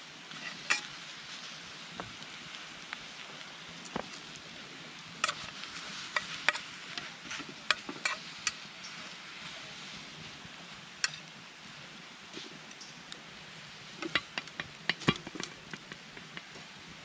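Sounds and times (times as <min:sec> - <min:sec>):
vegetables sizzling in a frying pan: 0:00.0 - 0:17.0
utensil scraping a pan: 0:00.3 - 0:01.0, 0:05.2 - 0:09.2, 0:14.0 - 0:16.6.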